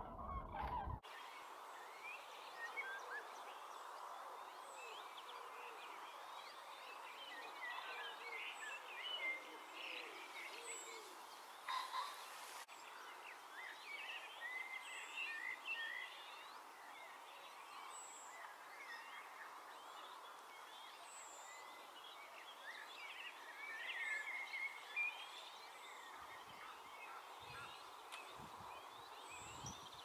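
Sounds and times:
songbirds chirping: 0.0s - 30.0s.

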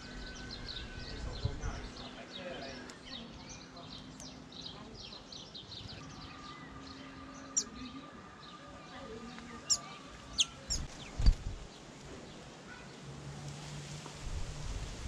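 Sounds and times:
songbirds chirping: 0.0s - 13.1s
faint bird twittering: 5.8s - 8.0s, 9.6s - 11.6s.

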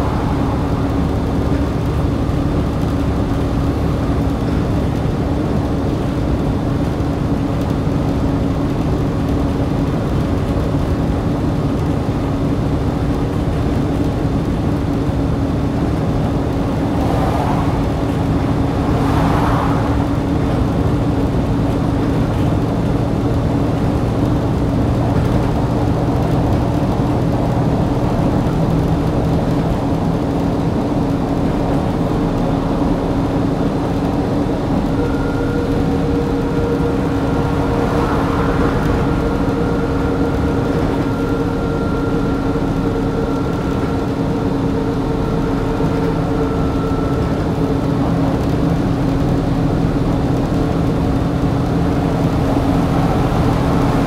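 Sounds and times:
bus diesel engine droning: 0.0s - 54.0s
thin whine: 25.0s - 54.0s.

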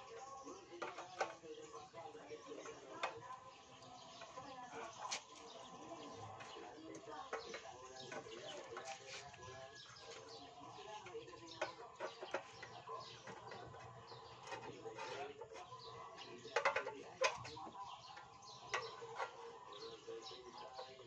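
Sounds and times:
birds chirping: 0.0s - 21.0s
chickens clucking: 0.0s - 21.0s.

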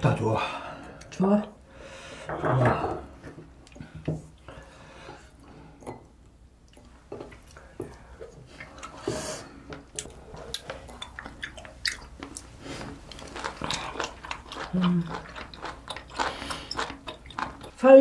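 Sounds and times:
person chewing: 5.1s - 17.8s.

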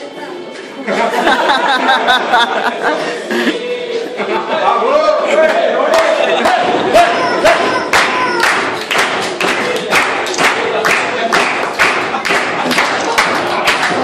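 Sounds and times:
people clapping rhythmically: 5.4s - 14.0s
music: 7.8s - 14.0s.

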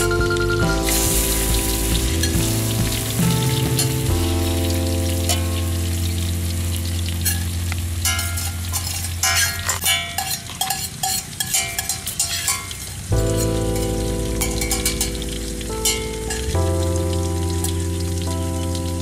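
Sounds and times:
background music: 0.0s - 8.7s, 13.1s - 19.0s
pork frying in hot oil: 0.4s - 19.0s.

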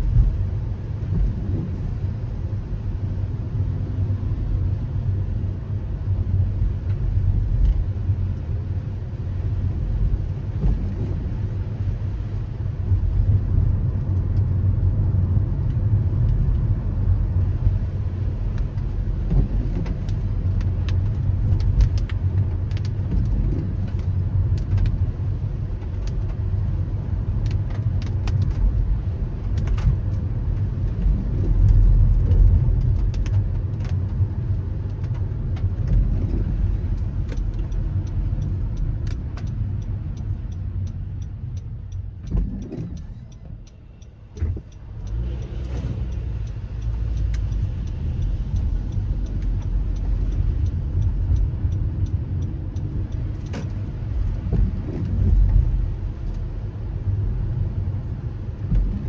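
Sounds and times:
car on wet road: 0.0s - 59.0s
sharp ticks: 37.3s - 54.6s.

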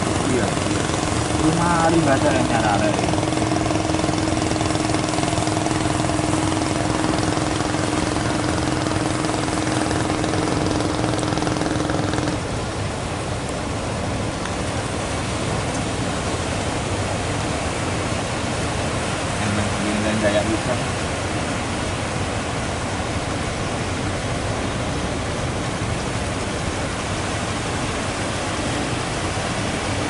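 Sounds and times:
surf breaking: 0.0s - 12.6s
boat engine running: 0.0s - 30.0s.

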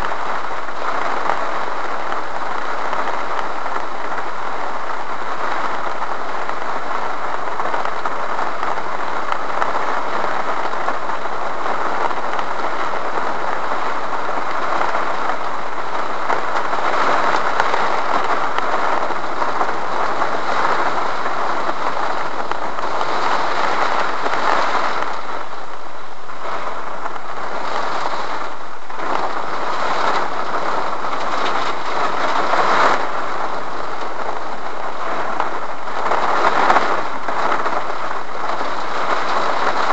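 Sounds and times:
heavy rain on car roof: 0.0s - 39.9s.

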